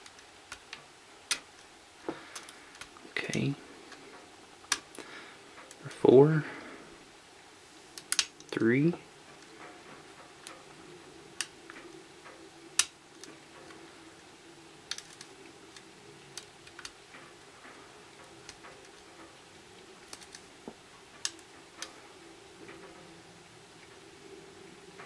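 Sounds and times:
lock pick clicking pins: 8.0s - 8.6s, 14.9s - 17.0s, 20.0s - 20.5s, 21.2s - 21.9s.

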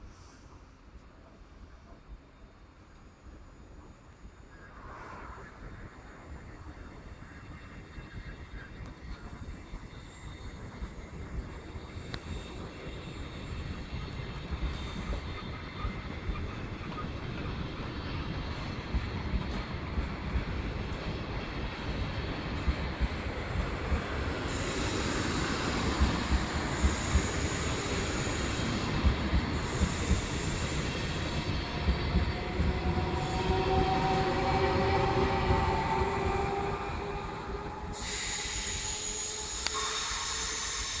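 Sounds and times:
train rolling rumble: 0.0s - 41.0s
steady high hiss: 24.4s - 31.6s, 37.9s - 41.0s
wavering wheel squeal: 32.9s - 41.0s.

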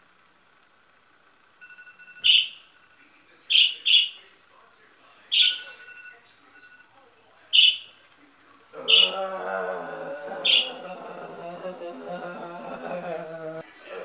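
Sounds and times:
faint thin steady tones: 0.0s - 3.5s, 4.2s - 8.8s
loud bird-like chirps: 2.2s - 2.7s, 3.5s - 4.2s, 5.3s - 5.8s, 7.5s - 8.0s, 8.9s - 9.1s.

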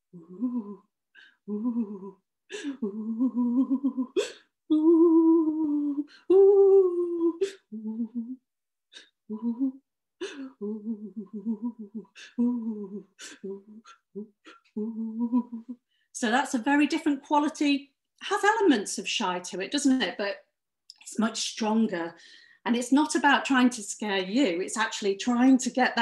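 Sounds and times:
woman humming and whimpering: 0.0s - 15.8s
sharp breathy sounds: 8.9s - 14.8s.

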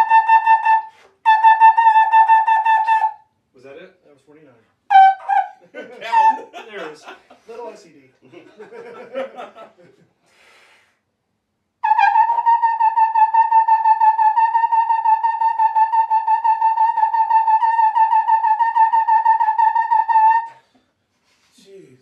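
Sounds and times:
trombone repeated high notes: 4.9s - 6.5s.

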